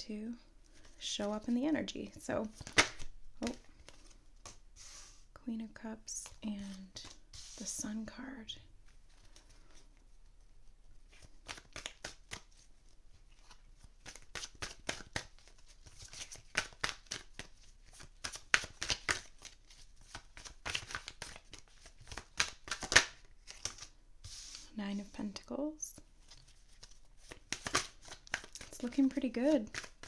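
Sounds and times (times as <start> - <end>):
cards being shuffled: 2.4 - 5.2, 6.2 - 7.8, 11.1 - 12.7, 13.4 - 25.2, 26.2 - 30.0.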